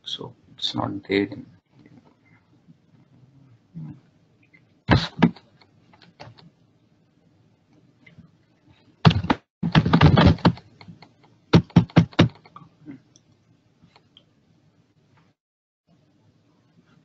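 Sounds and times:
keyboard typing: 0:09.1 - 0:12.6.

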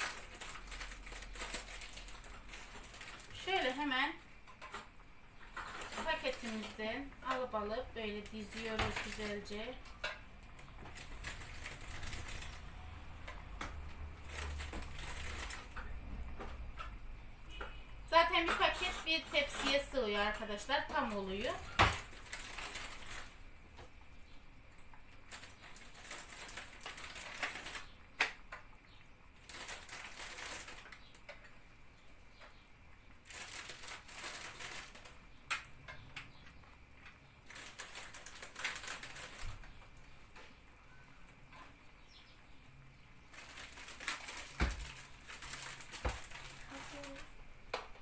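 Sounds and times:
plastic packet crinkling: 0:00.0 - 0:04.8, 0:05.4 - 0:13.3, 0:14.0 - 0:16.0, 0:18.8 - 0:23.5, 0:25.2 - 0:27.9, 0:29.3 - 0:31.4, 0:33.2 - 0:35.7, 0:37.4 - 0:39.9, 0:43.3 - 0:47.4.

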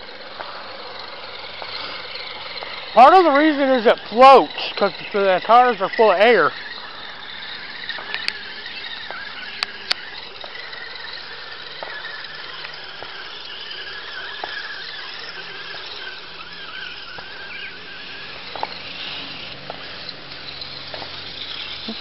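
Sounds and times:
toy car electric motor whining: 0:00.0 - 0:22.0
sharp clicks: 0:07.4 - 0:13.2.

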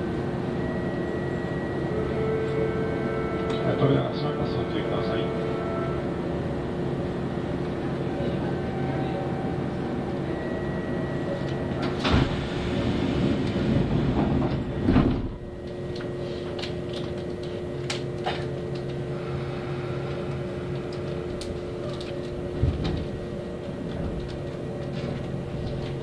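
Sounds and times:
train equipment hum: 0:00.0 - 0:26.0
sliding doors hissing shut with thud: 0:11.9 - 0:15.4.

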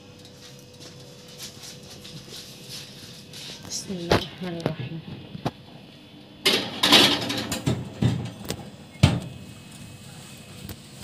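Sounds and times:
metal pan scraping on rack: 0:06.5 - 0:07.8.

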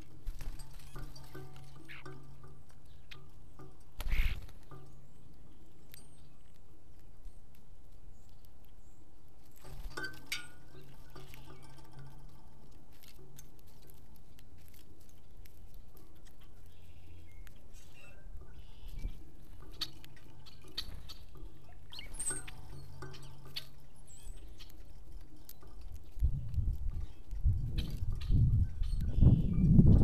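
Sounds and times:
low steady hum: 0:00.0 - 0:30.0
small animals tapping and scratching: 0:00.0 - 0:30.0
high bird chirp: 0:16.2 - 0:30.0.

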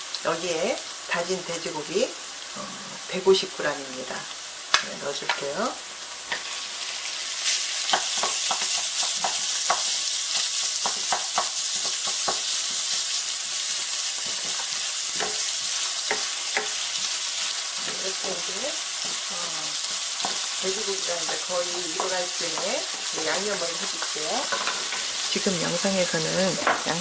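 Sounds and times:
meat sizzling in hot oil: 0:00.0 - 0:27.0
wooden utensils tapping pan: 0:07.8 - 0:10.0, 0:10.8 - 0:12.8, 0:14.2 - 0:16.8, 0:19.9 - 0:27.0.

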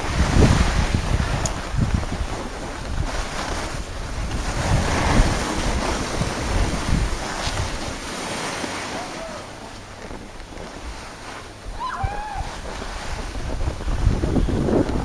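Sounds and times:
skis sliding on snow: 0:00.0 - 0:15.0
wind buffeting microphone: 0:00.0 - 0:15.0.

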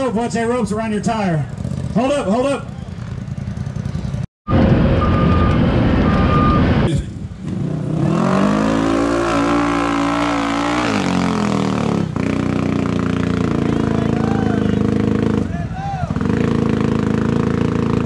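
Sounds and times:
utility vehicle engine revving: 0:01.4 - 0:18.0
high beep: 0:04.5 - 0:06.7.

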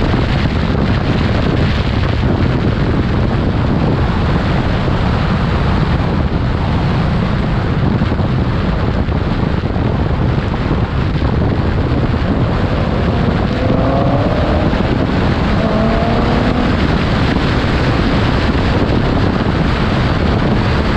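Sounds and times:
tyre and road rumble: 0:00.0 - 0:20.9
wind buffeting microphone: 0:00.0 - 0:20.9
faint engine rising in pitch: 0:11.8 - 0:17.6.

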